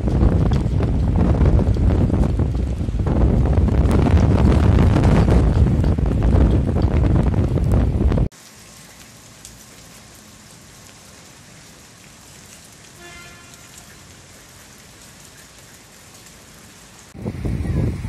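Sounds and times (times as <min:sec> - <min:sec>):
wind buffeting microphone: 0:00.0 - 0:08.3, 0:17.1 - 0:18.0
rain pattering on pavement: 0:00.0 - 0:18.0.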